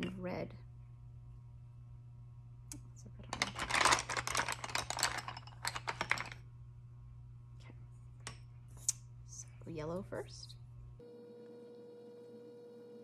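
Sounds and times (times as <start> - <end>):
wooden pencils rattling and clicking: 3.2 - 6.4.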